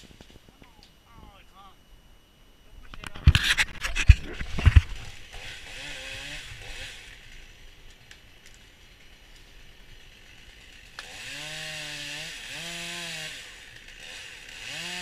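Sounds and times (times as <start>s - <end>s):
chainsaw revving faintly: 3.6s - 15.0s.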